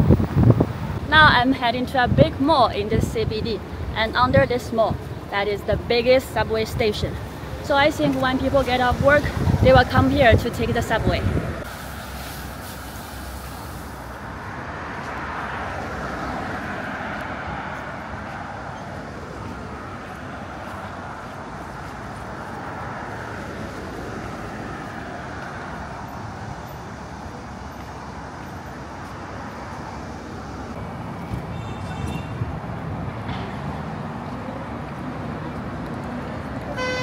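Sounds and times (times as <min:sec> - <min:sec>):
cars passing: 0:00.0 - 0:37.0.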